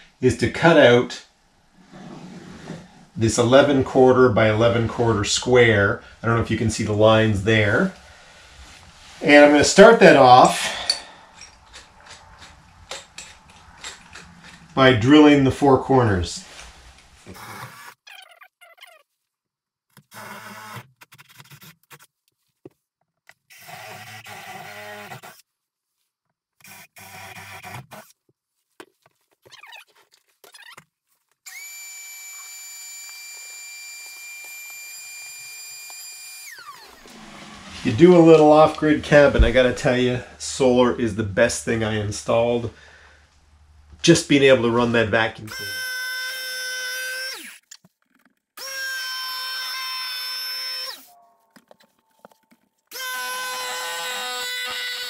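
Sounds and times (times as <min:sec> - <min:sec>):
jigsaw cutting wood: 0:17.3 - 0:18.0, 0:20.1 - 0:21.4, 0:23.5 - 0:25.4, 0:26.6 - 0:28.1, 0:31.5 - 0:37.9, 0:45.5 - 0:47.6, 0:48.6 - 0:51.1, 0:52.9 - 0:55.0
shop vacuum whining: 0:31.5 - 0:40.3.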